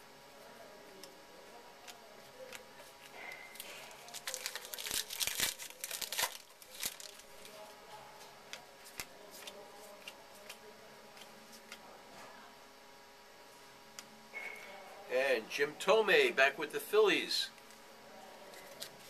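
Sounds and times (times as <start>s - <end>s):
wrapper ripping and crinkling: 3.5s - 7.6s.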